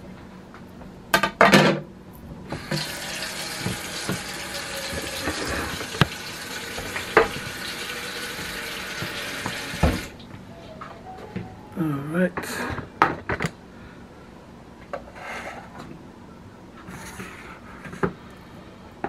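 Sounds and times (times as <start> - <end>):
kitchen tap running: 2.5 - 10.2.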